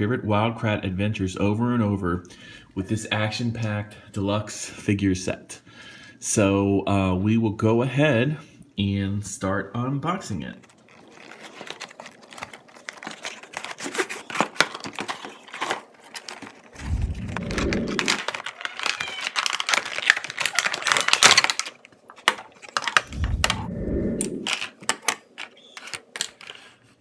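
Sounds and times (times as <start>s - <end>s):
plastic and cardboard crinkling: 10.4s - 23.7s, 24.4s - 27.0s
dull low rumbles: 16.8s - 18.2s, 23.1s - 24.5s.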